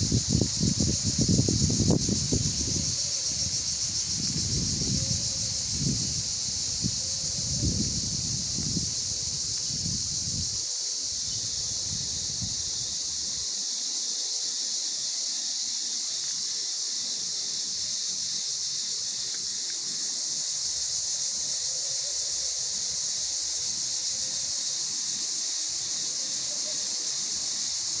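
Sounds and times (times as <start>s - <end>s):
wind rumble on microphone: 0.0s - 13.3s
insect chorus hissing: 0.0s - 28.0s.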